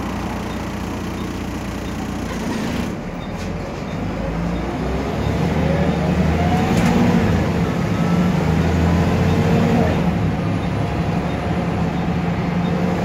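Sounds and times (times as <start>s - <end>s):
bus diesel engine accelerating: 0.0s - 13.0s.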